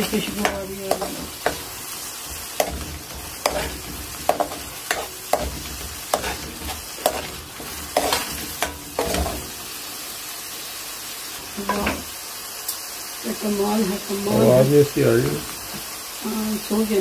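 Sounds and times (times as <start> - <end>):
metal spoon scraping a pan: 0.0 - 9.6
oil sizzling: 0.0 - 17.0.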